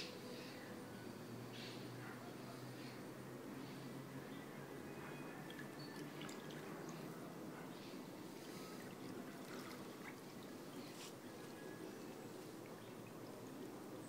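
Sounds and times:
pool water lapping and sloshing: 5.4s - 14.0s
small water drips and splashes: 5.5s - 7.1s, 8.4s - 11.0s, 12.0s - 13.7s.

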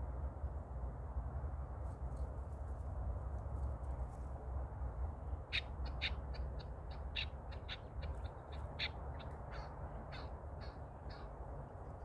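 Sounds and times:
partridge calling: 5.5s - 11.4s.

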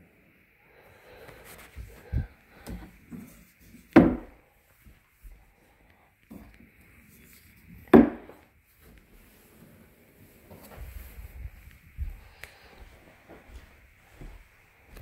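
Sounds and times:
sharp wooden knocks: 4.0s - 4.3s, 7.9s - 8.3s.

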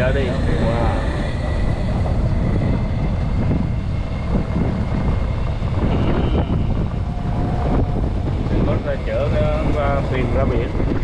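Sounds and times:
faint voices: 0.0s - 3.4s
wind buffeting microphone: 0.0s - 11.0s.

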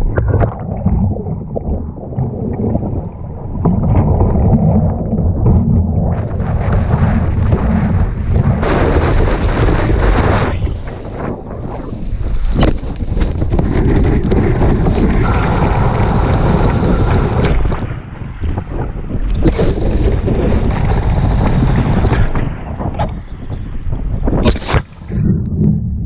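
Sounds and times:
wind buffeting microphone: 0.0s - 26.0s
water rushing: 14.4s - 22.6s.

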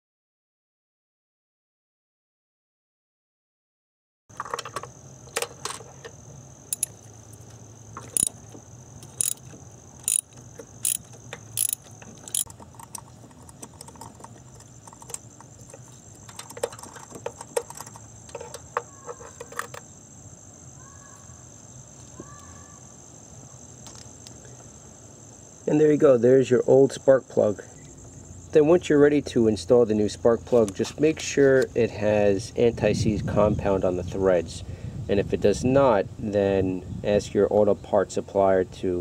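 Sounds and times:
ratchet clicking: 6.7s - 7.0s, 8.0s - 8.4s, 9.0s - 19.8s.

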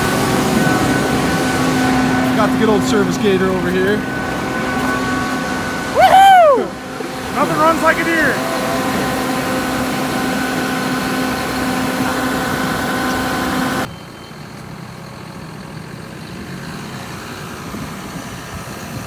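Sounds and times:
steady whine: 0.0s - 14.2s
tractor diesel engine idling: 0.0s - 19.0s.

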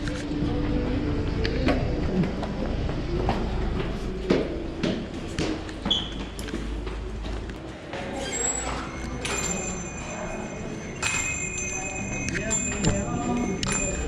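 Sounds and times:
footsteps in a stairwell: 0.0s - 14.0s
thin steady high tones: 8.8s - 14.0s.

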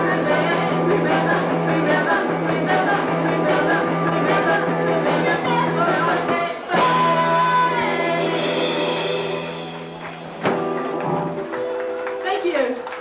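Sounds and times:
guitar and keyboard chord ringing: 0.0s - 12.2s
drum and cymbal crash: 6.1s - 10.7s.

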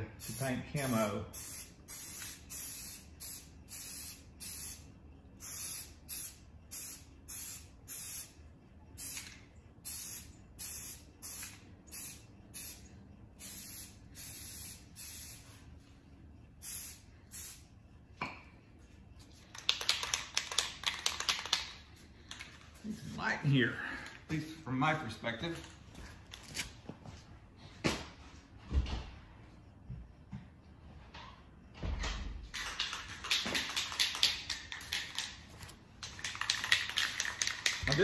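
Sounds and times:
spray can rattling when shaken: 0.2s - 4.8s, 9.0s - 12.8s, 19.3s - 22.7s, 32.5s - 38.0s
spray paint can hissing in bursts: 0.2s - 8.4s, 9.0s - 15.7s, 16.6s - 17.7s, 36.1s - 38.0s.

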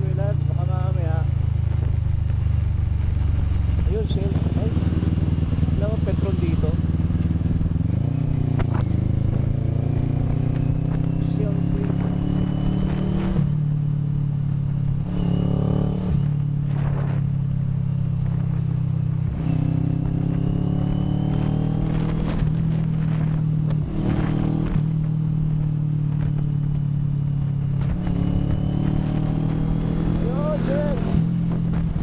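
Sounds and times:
low steady rumble: 0.0s - 12.0s
motorcycle engine accelerating: 0.0s - 32.0s.

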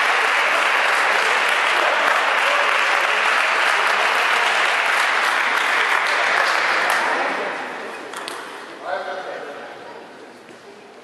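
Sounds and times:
audience applauding: 0.0s - 7.6s.

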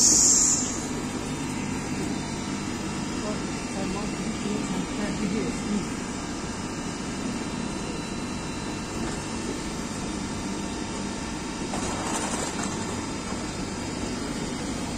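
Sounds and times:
hiss: 0.0s - 0.9s
train hum and rumble: 0.0s - 14.9s.

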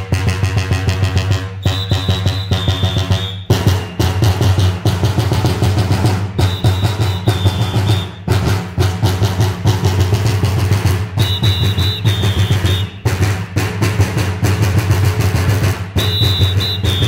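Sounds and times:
bass drums beaten in rhythm: 0.0s - 17.0s
shrill whistle: 1.6s - 4.2s, 6.4s - 8.3s, 11.2s - 13.0s, 16.0s - 17.0s.

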